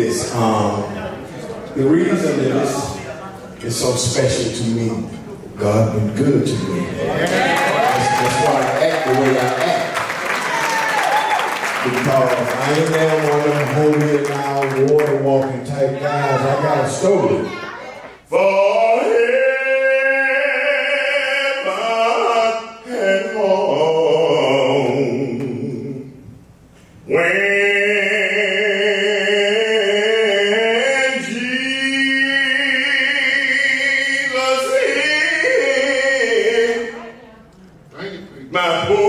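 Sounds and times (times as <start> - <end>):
man singing long notes: 18.3 - 26.2, 27.1 - 37.1.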